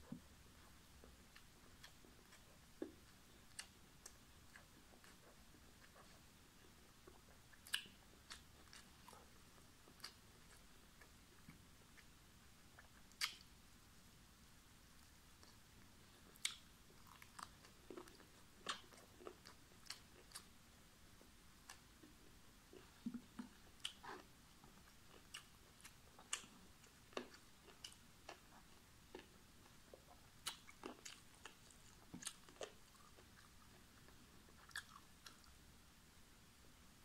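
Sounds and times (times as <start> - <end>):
person chewing: 0.6 - 12.1, 12.7 - 13.4, 16.2 - 20.5, 22.7 - 35.5
wet clicks and lip smacks: 12.8 - 13.5, 16.3 - 20.5.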